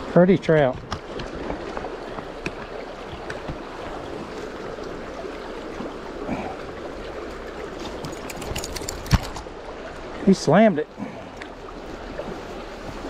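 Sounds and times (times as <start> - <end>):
river current rushing: 0.0 - 13.0
handling clicks and knocks: 7.8 - 9.5.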